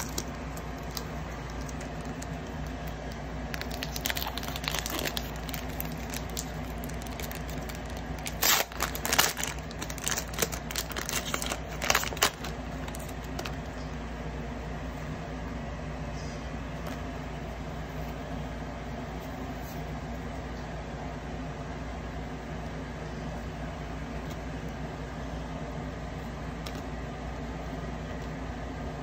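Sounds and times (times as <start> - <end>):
foil pack tearing and crinkling: 0.0 - 13.6
steady low hum: 0.0 - 29.0.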